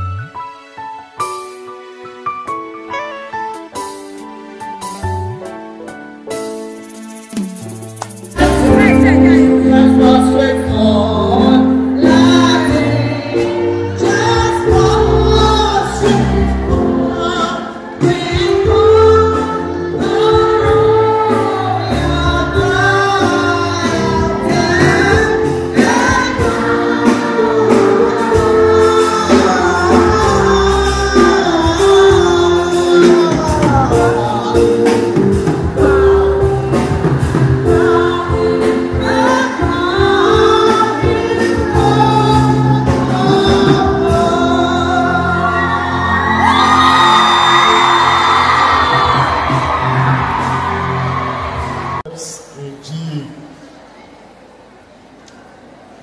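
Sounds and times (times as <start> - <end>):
sustained keyboard chords: 0.0 - 52.0
bass line: 7.3 - 13.2
choir singing gospel: 8.3 - 52.1.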